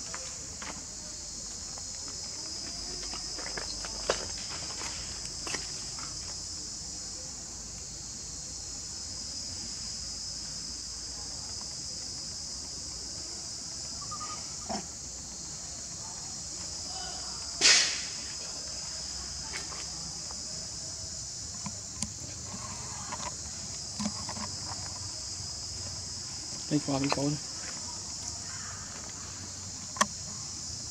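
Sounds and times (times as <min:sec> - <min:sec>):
insects chorus: 0:00.0 - 0:30.9
sharp knock: 0:17.6 - 0:18.1.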